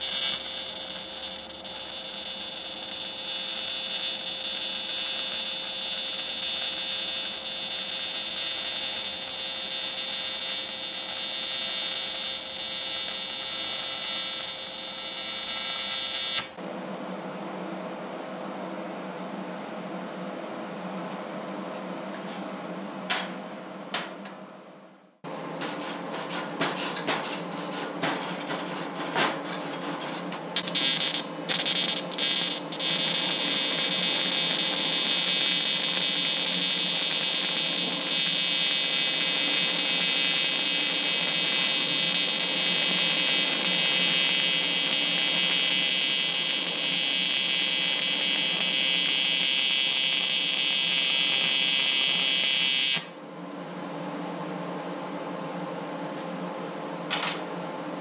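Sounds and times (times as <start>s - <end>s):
welding arc crackling hiss: 0.0s - 16.6s, 28.8s - 53.1s.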